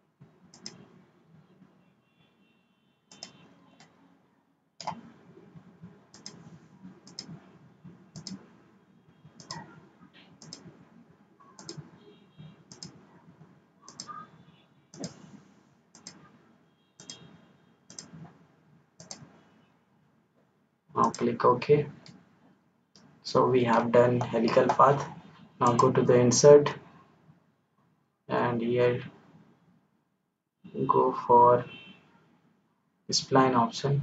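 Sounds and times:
low room noise: 0:00.0 - 0:34.0
computer mouse button clicking: 0:09.4 - 0:09.6, 0:14.9 - 0:15.2, 0:17.9 - 0:18.1.

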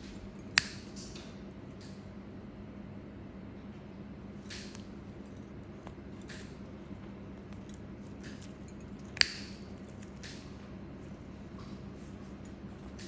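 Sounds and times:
steady low hum: 0:00.0 - 0:13.0
metal blade scraping toenail: 0:04.5 - 0:13.0.

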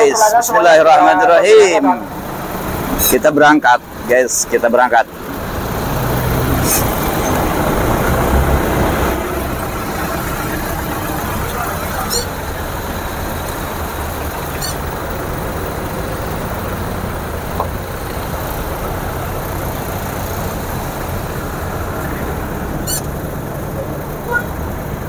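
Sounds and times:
jeep engines rumbling: 0:00.0 - 0:25.0
high squeaks: 0:11.6 - 0:12.4, 0:14.4 - 0:16.6, 0:22.8 - 0:23.2.

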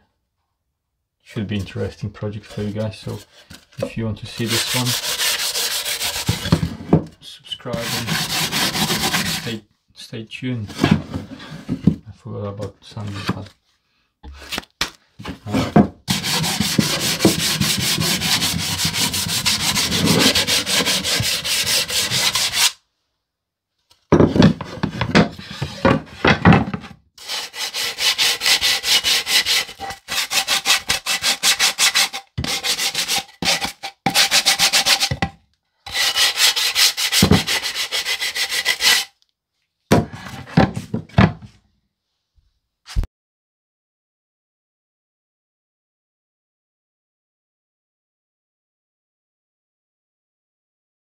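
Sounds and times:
hand sanding wood: 0:04.3 - 0:06.6, 0:07.7 - 0:09.6, 0:16.1 - 0:22.8, 0:27.2 - 0:35.1, 0:35.9 - 0:39.1.

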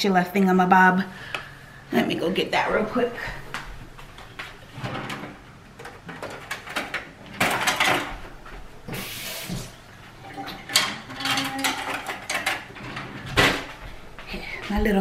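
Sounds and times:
kitchen utensils knocking and rattling: 0:04.1 - 0:08.4, 0:10.2 - 0:14.0
short hiss: 0:08.9 - 0:09.7.

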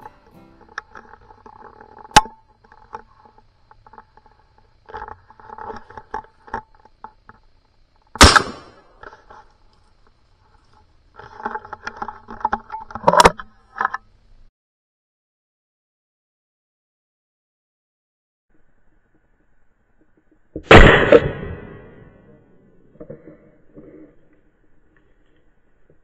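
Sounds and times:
shotgun shot with echo: 0:08.2 - 0:08.8, 0:20.6 - 0:22.2
sharp crack: 0:08.2 - 0:09.4, 0:20.6 - 0:22.3.

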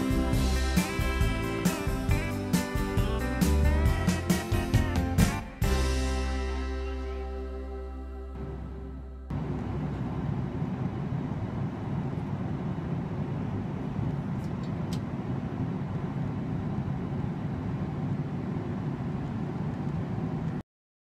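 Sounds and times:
jet engines rumbling in cabin: 0:09.3 - 0:20.6.

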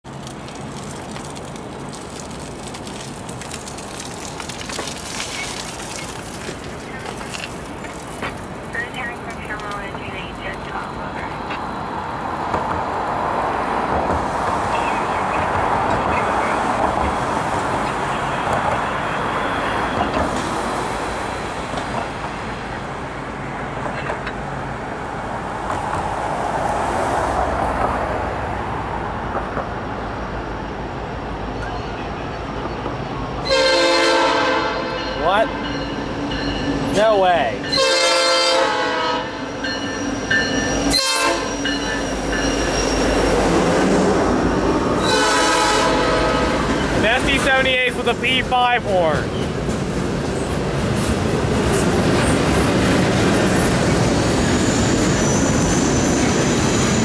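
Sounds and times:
crackling: 0:00.1 - 0:11.7
traffic tyre hiss: 0:00.1 - 0:21.8.

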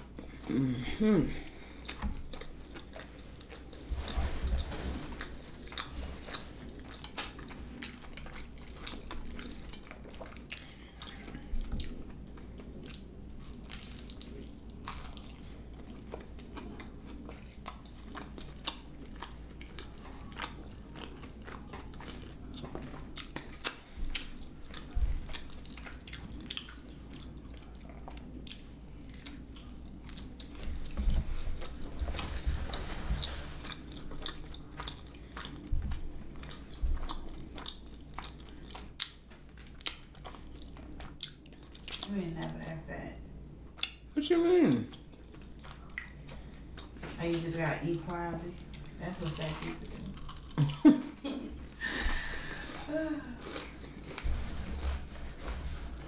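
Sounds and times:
person chewing crunchy food: 0:00.0 - 0:42.2, 0:44.9 - 0:47.1, 0:48.6 - 0:54.8.

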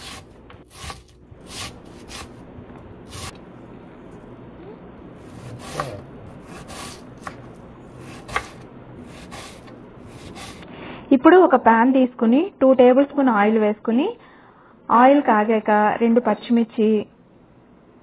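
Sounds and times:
knife cutting onion on wooden board: 0:00.0 - 0:02.4, 0:03.0 - 0:03.4, 0:05.2 - 0:10.6.

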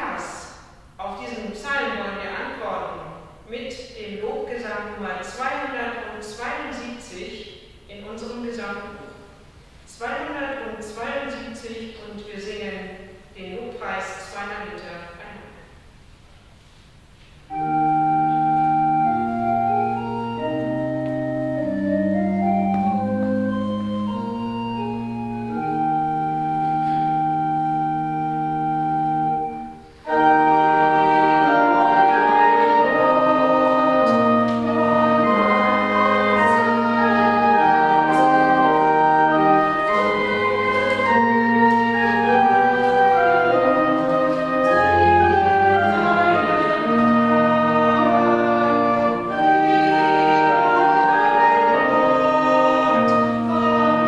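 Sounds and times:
church organ playing a hymn: 0:17.4 - 0:54.0.

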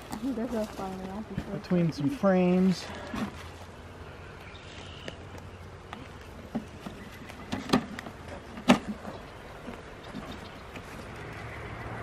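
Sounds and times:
wooden frames knocking and scraping: 0:06.4 - 0:11.1.

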